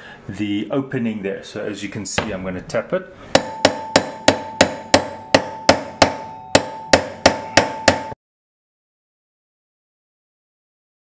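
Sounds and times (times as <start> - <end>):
hammer tapping metal chisel: 3.3 - 8.2.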